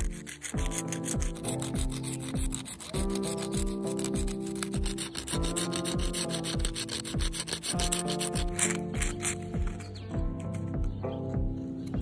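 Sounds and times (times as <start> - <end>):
pencil lead scratching on sponge: 0.0 - 10.7
music with held chords and kick drum: 6.7 - 12.0.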